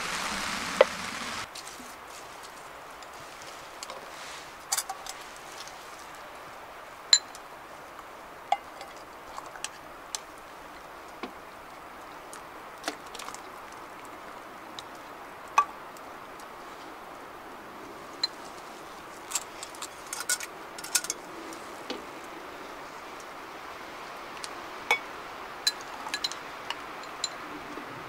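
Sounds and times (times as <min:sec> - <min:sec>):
steady low hiss: 0:00.0 - 0:28.0
metal ladle clinking: 0:20.1 - 0:21.2.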